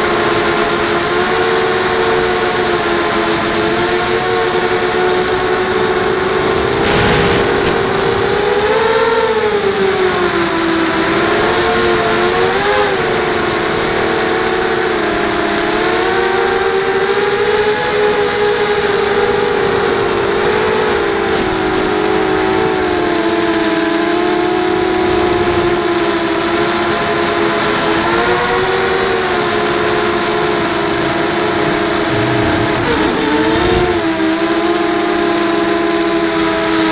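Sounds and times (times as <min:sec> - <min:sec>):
drone motors whining: 0:30.3 - 0:34.8
rush of prop wash: 0:30.3 - 0:35.0.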